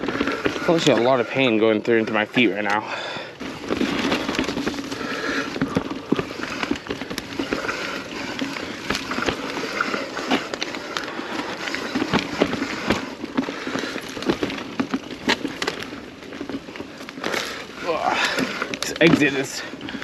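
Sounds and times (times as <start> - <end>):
bicycle chain and frame rattling: 0.0 - 20.0
bike tyres rolling over dirt: 0.0 - 20.0.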